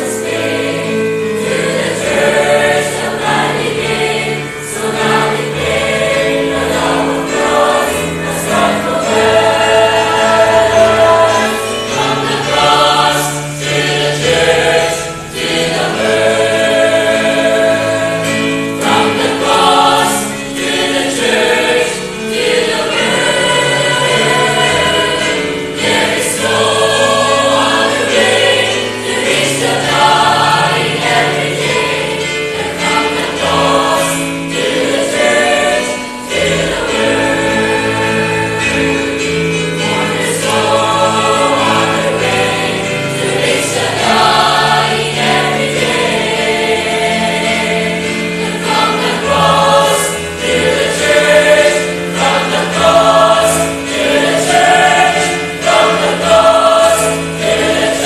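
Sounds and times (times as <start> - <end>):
choir singing a hymn: 0.0 - 58.0.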